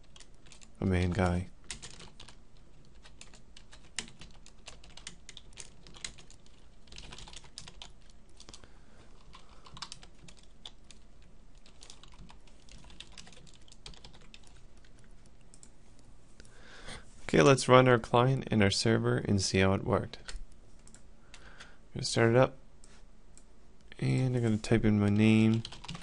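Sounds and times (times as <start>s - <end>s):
typing on computer keyboard: 0.0s - 0.7s, 1.6s - 8.6s, 9.2s - 11.0s, 11.6s - 15.7s, 25.5s - 26.0s.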